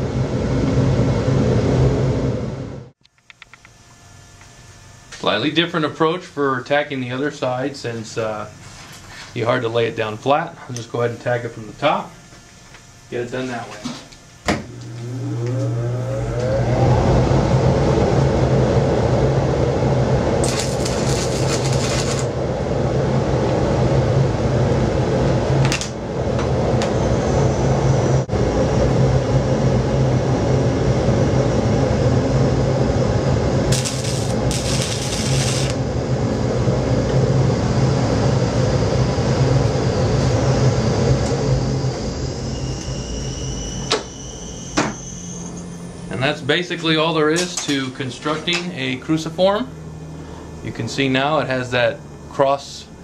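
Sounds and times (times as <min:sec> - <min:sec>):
welding machine humming: 0:20.1 - 0:22.4, 0:33.3 - 0:38.0
welding crackle: 0:20.4 - 0:22.3, 0:33.7 - 0:35.8.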